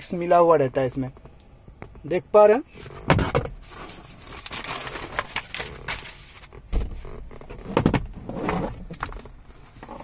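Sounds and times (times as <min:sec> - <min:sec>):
paper rustling: 0:03.6 - 0:06.6.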